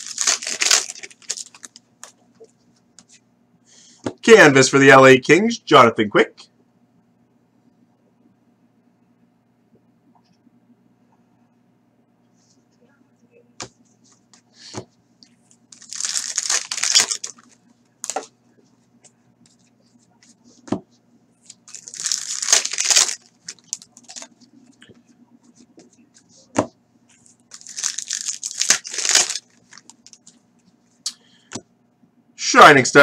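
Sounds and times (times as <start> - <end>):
wrappers tearing and crinkling: 0.0 - 1.8, 15.7 - 18.3, 21.4 - 24.3, 27.4 - 30.2.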